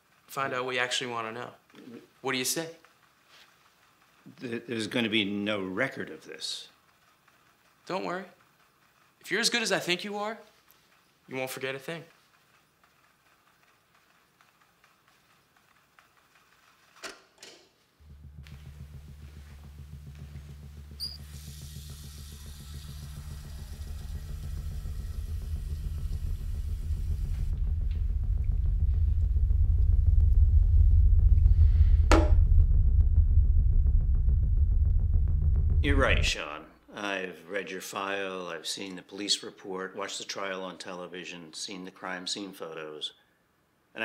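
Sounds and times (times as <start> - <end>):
low pulsing drone: 18.0 - 36.6.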